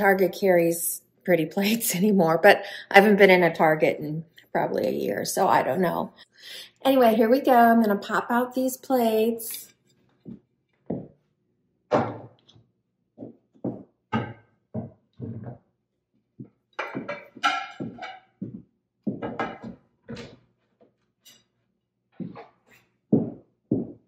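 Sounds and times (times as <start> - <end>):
plates clunking onto table: 11.9 - 12.4, 13.7 - 15.6, 16.8 - 18.4, 19.1 - 20.4.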